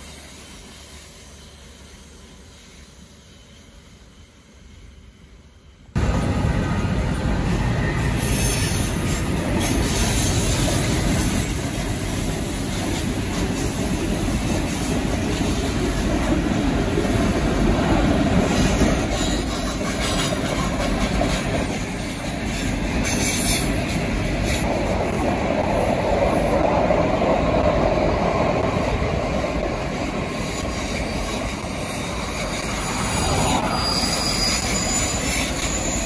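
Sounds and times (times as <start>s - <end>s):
train wheels running on rails: 0.0s - 36.0s.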